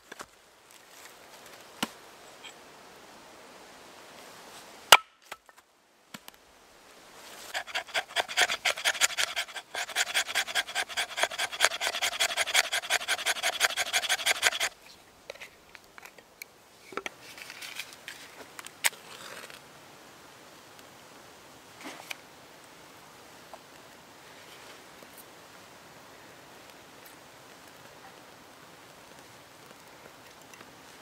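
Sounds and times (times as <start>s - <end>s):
knife scraping wooden stick: 7.5s - 14.8s
soft clicks and rustles: 28.9s - 31.0s.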